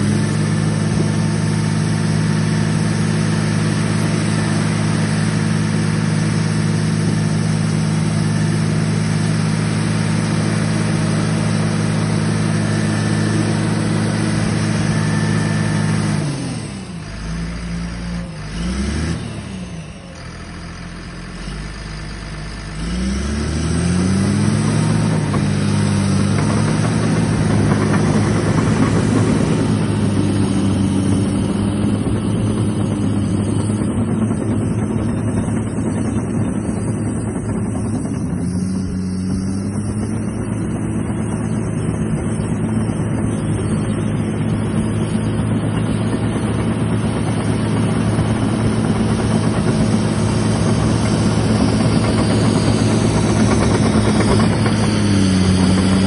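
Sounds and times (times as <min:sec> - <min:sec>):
diesel engine revving: 0:00.0 - 0:56.0
dozer tracks moving: 0:22.8 - 0:56.0.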